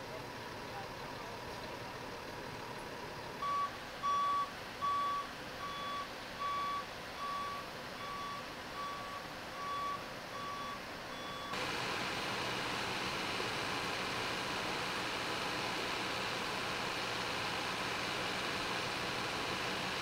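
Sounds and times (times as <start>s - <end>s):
reversing alarm beeping: 3.4s - 11.6s
steady hiss: 11.6s - 20.0s.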